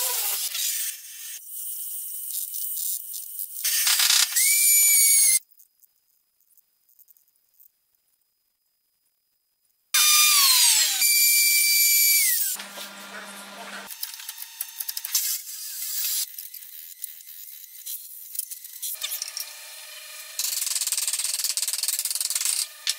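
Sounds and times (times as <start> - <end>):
wood router whining: 0.0 - 1.3, 10.0 - 17.8, 18.6 - 20.8, 22.1 - 22.9.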